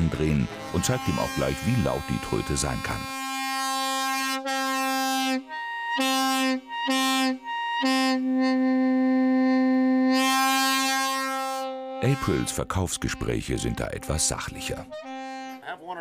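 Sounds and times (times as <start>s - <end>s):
truck air horn: 0.0s - 15.8s.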